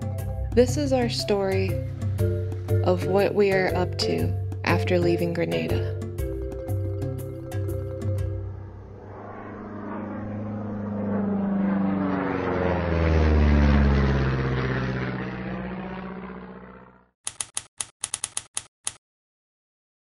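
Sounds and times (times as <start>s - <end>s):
airplane flyby whoosh: 1.2s - 4.6s, 7.0s - 17.1s
typewriter key clacks: 17.3s - 19.0s.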